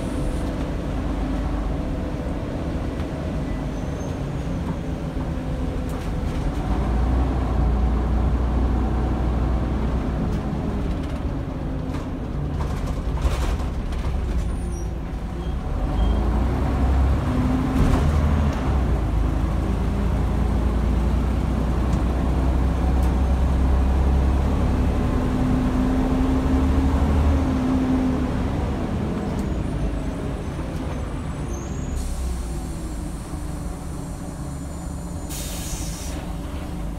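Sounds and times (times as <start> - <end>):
bus diesel engine: 0.0 - 36.9
air hiss: 32.0 - 36.4.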